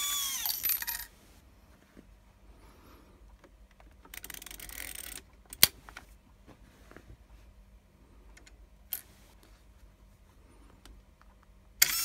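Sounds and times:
metal parts scraping: 0.0 - 1.1.

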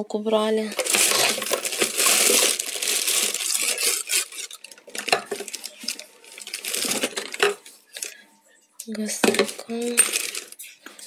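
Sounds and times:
paper and plastic bags rustling: 0.6 - 8.2, 9.0 - 11.0
jars and bottles clinking: 0.7 - 8.2, 9.0 - 10.6.

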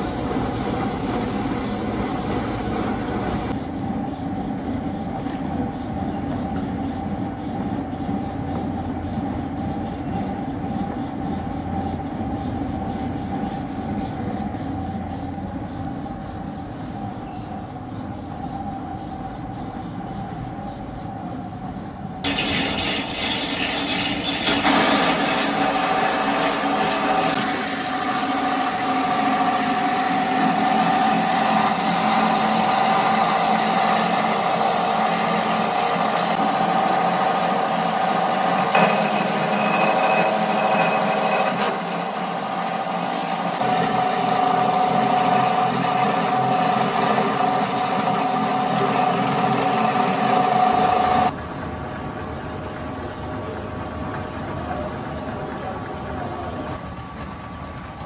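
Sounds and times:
roller machine running: 0.0 - 58.0
plastic extruder humming: 25.5 - 51.3.

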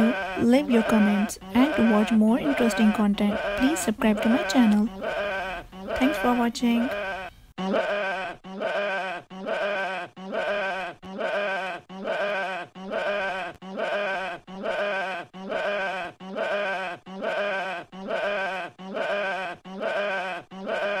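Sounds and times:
sheep bleating: 0.0 - 21.0.

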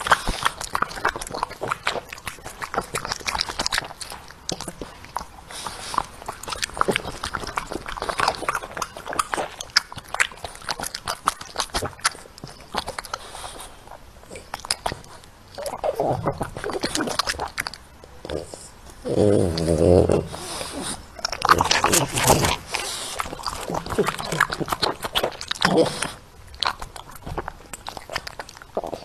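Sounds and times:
dog chewing greens: 0.0 - 29.0.

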